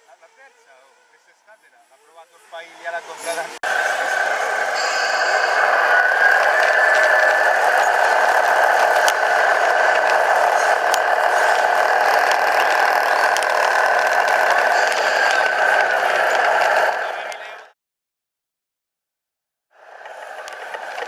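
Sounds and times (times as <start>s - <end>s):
model truck mechanical drone: 0.0s - 17.7s, 19.8s - 21.0s
rattling: 3.6s - 17.3s
sharp ticks: 3.6s - 17.6s, 20.0s - 21.0s.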